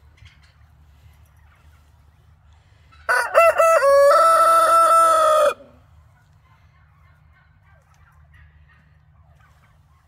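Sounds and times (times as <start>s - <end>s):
rooster crowing: 3.1s - 5.8s.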